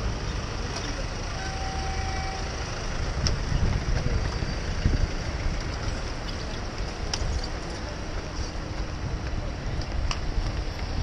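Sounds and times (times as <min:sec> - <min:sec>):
traffic: 0:00.0 - 0:11.0
wind rumble on microphone: 0:02.8 - 0:11.0.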